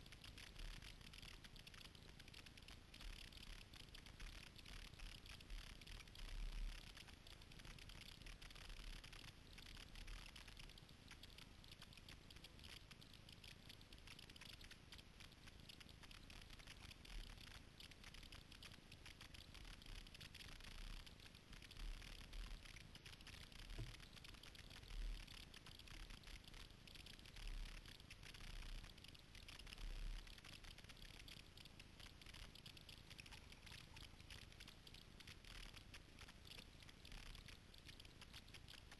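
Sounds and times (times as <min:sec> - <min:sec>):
paddle drips and water trickling: 0:23.7 - 0:25.2.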